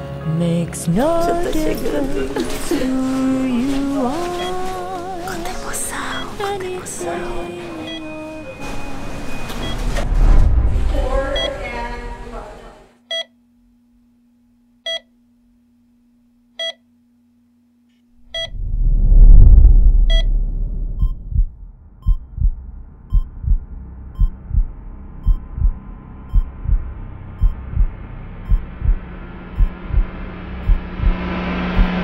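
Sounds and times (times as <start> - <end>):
patient monitor beeping: 4.2 - 10.0, 11.3 - 11.7, 18.3 - 18.6, 25.2 - 25.5
deep whoosh: 9.6 - 12.0, 18.2 - 32.0
steady low hum: 13.4 - 32.0
heartbeat thumping: 18.3 - 32.0.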